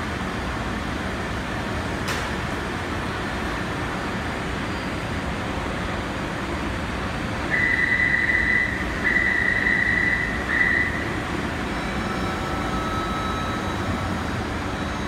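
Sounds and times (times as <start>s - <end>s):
train humming at platform: 0.0s - 15.0s
high electronic warning tone: 7.6s - 15.0s.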